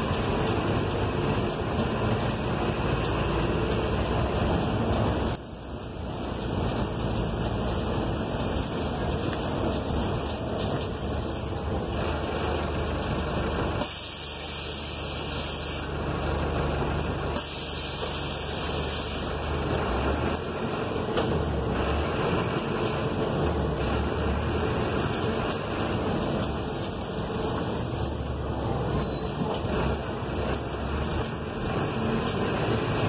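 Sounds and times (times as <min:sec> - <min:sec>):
bus engine humming: 0:00.0 - 0:33.0
road and tyre noise: 0:00.0 - 0:33.0
air hiss: 0:13.8 - 0:15.9, 0:17.4 - 0:19.4.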